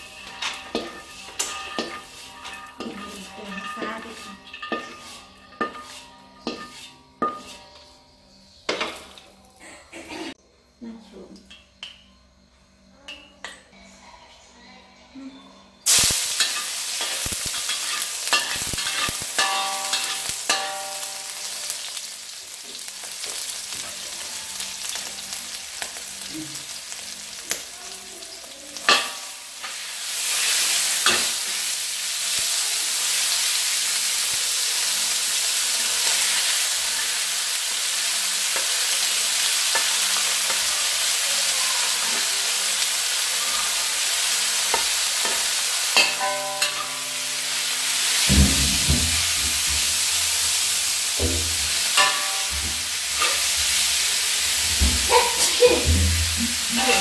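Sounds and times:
food sizzling in hot oil: 0.0 - 7.8, 8.6 - 9.4, 15.8 - 57.0
metal ladle scraping a wok: 0.0 - 9.2, 15.9 - 22.2, 43.1 - 57.0.

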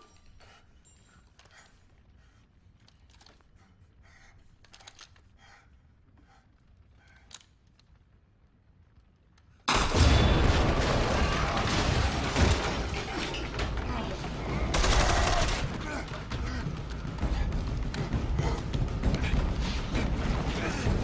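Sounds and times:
faint clicks and creaks: 0.1 - 9.7
rapid rifle fire: 14.5 - 21.0.

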